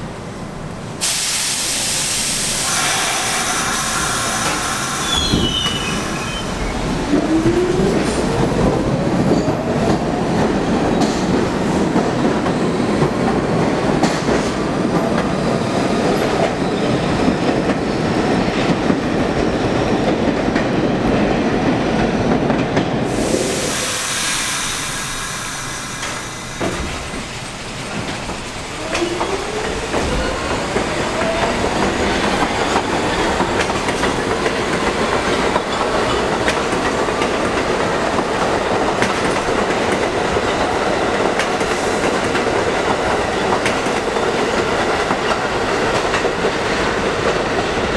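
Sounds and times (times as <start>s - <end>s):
subway train motor whining: 0.0s - 9.2s
train wheels clattering and squealing: 2.6s - 21.3s, 22.3s - 47.9s.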